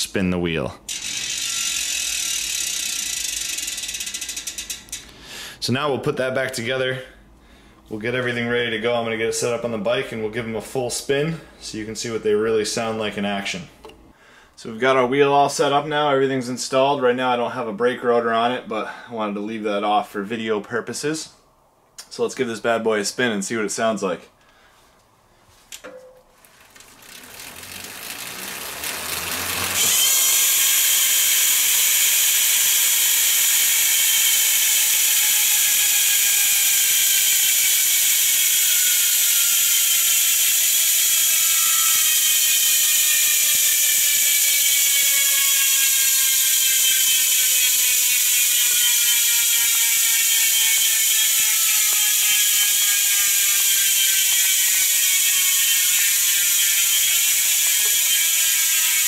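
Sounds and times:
bicycle hub freewheeling buzz: 0.9s - 5.5s, 26.4s - 59.0s.

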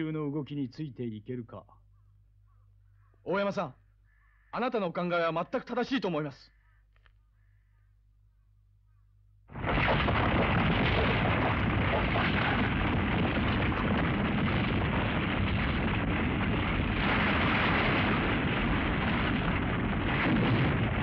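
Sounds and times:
ground rumbling and erupting: 9.5s - 21.0s.

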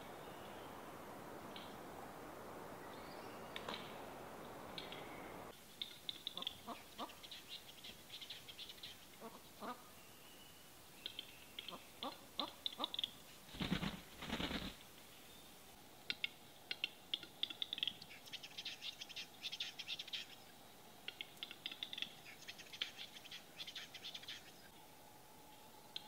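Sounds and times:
steady hiss: 0.0s - 26.0s
bird clicking and popping song: 3.5s - 4.0s, 4.7s - 5.1s, 5.8s - 9.0s, 11.0s - 13.2s, 16.0s - 20.4s, 21.0s - 24.5s.

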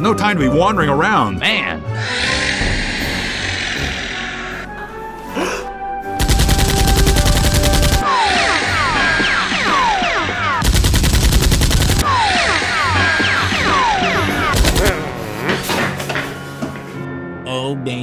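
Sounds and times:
background music: 0.0s - 18.0s
machine-gun fire: 6.2s - 8.5s, 9.5s - 12.1s.

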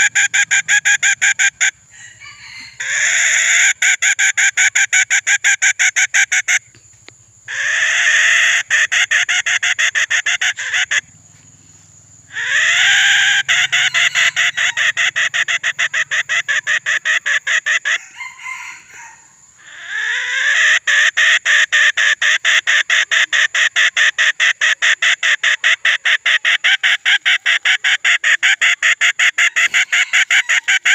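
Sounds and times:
rooster crowing: 1.9s - 3.6s, 12.3s - 15.1s, 17.9s - 19.5s, 29.5s - 30.9s.

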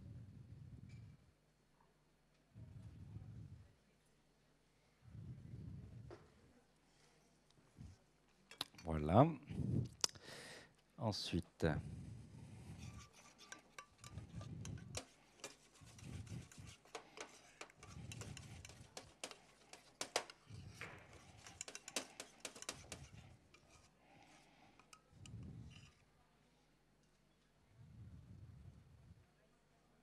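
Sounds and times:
metal utensils clinking on steel: 12.8s - 26.0s.

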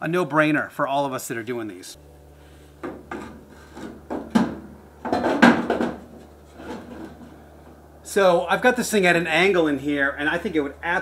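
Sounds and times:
radiator scraping against bodywork: 2.1s - 7.9s.

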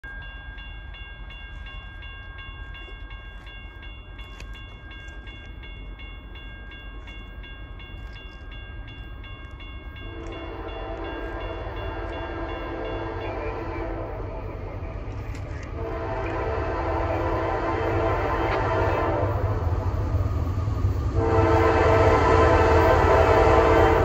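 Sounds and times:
distant locomotive horn: 10.0s - 20.2s, 21.1s - 24.0s.

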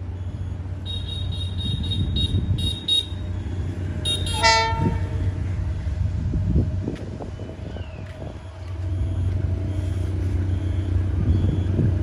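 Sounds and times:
locomotive engine rumble: 0.0s - 12.0s
locomotive horn blast: 0.9s - 3.3s, 4.0s - 5.5s.

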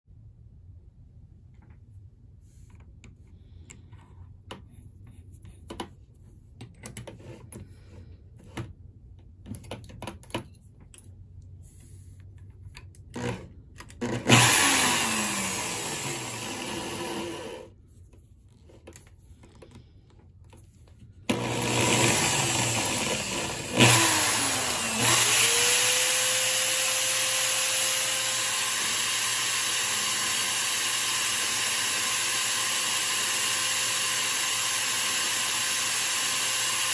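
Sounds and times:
electric drill motor whining: 14.0s - 17.7s, 21.3s - 36.9s.

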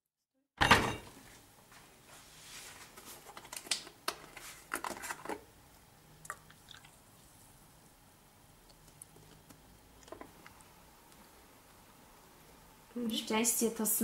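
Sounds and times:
milk pouring into mug: 6.3s - 7.3s.

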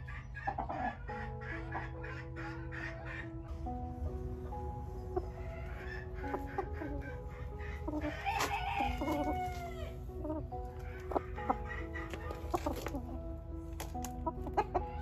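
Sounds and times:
chickens clucking: 0.0s - 15.0s
soft background music: 0.0s - 15.0s
rooster crowing: 8.0s - 10.0s.

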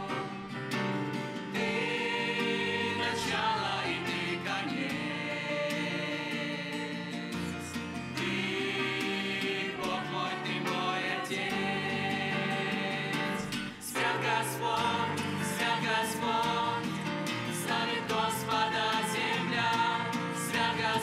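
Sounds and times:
church choir singing: 0.0s - 21.0s.

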